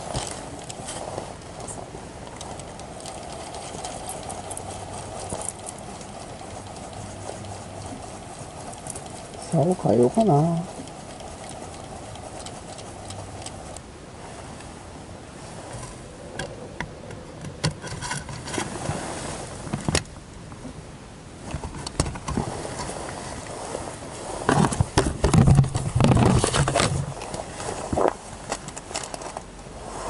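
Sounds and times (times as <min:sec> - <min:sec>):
fishing tackle clicks and rattles: 0:00.0 - 0:13.8, 0:24.5 - 0:27.4, 0:28.4 - 0:29.5
rubbing: 0:00.0 - 0:13.8
low buzzing hum: 0:00.0 - 0:30.0.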